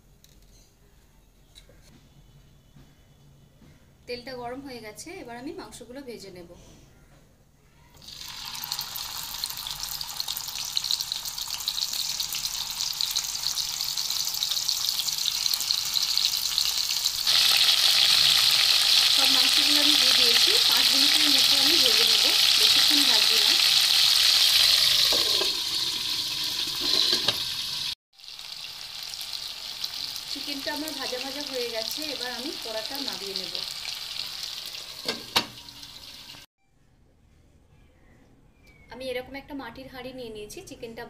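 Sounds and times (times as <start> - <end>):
chicken sizzling in hot oil: 8.0 - 36.5.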